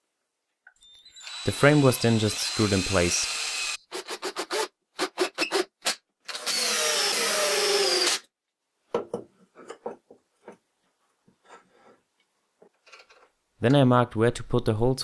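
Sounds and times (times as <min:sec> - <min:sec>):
drill driving screw into wood: 0:01.1 - 0:08.3.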